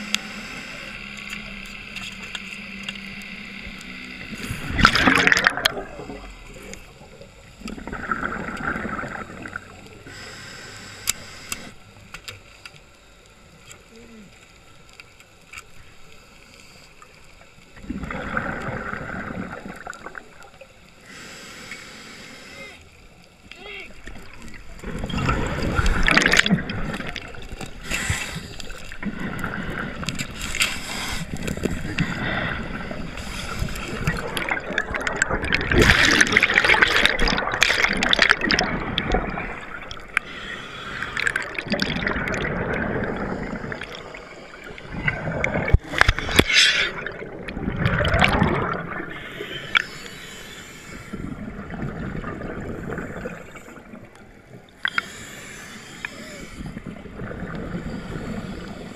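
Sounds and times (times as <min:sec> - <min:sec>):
scuba regulator breathing: 0:00.0 - 0:01.3, 0:10.0 - 0:11.8, 0:21.0 - 0:22.9, 0:24.8 - 0:47.4, 0:48.2 - 0:51.6, 0:54.8 - 0:58.9
exhaled bubbles gurgling: 0:03.2 - 0:10.2, 0:17.8 - 0:20.7, 0:23.8 - 0:50.2, 0:50.9 - 0:58.9.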